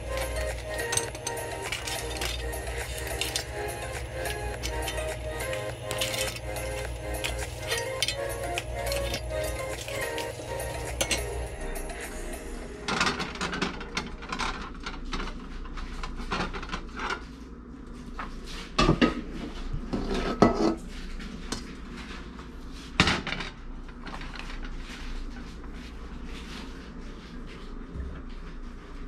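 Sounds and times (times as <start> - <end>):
wok clanking: 0.0 - 12.2
cloth rubbing wok: 0.0 - 12.8.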